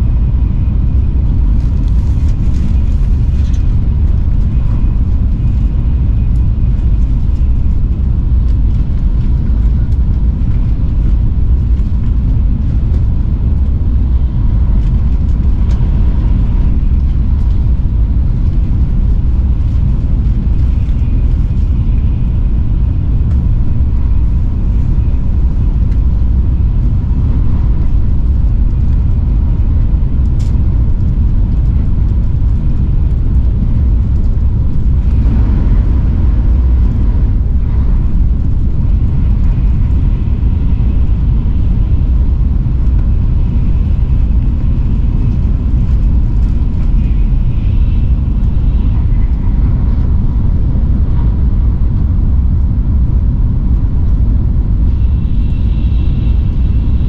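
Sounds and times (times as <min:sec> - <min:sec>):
faint steady whine: 0:00.0 - 0:57.0
train rumbling at speed: 0:00.0 - 0:57.0.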